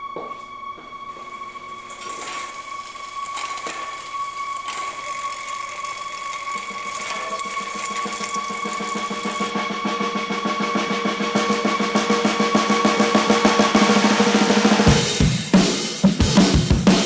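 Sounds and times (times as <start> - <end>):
bike chain running over gears: 1.9 - 9.5.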